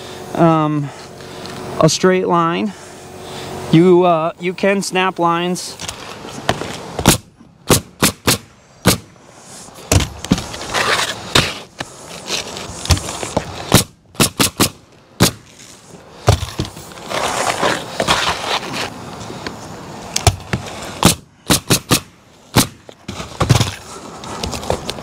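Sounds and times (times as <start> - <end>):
shingles scraping: 5.7 - 25.0
pneumatic nailer shots: 6.5 - 11.9, 12.7 - 16.9, 20.2 - 23.8.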